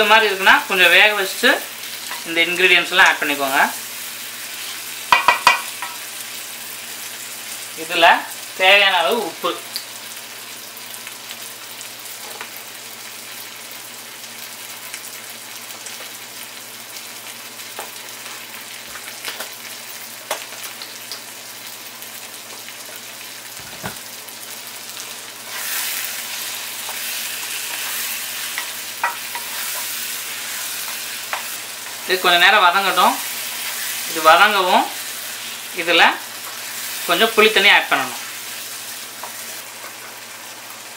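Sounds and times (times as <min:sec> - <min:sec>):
vegetables sizzling in oil: 0:00.0 - 0:40.9
spatula stirring a pan: 0:01.8 - 0:02.3, 0:04.5 - 0:06.0, 0:25.4 - 0:34.2.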